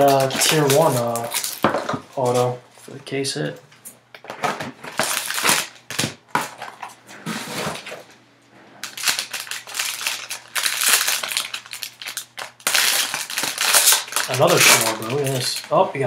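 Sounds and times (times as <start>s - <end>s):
foil wrapper crinkling and tearing: 0.0s - 2.6s, 4.9s - 6.0s, 8.8s - 15.8s.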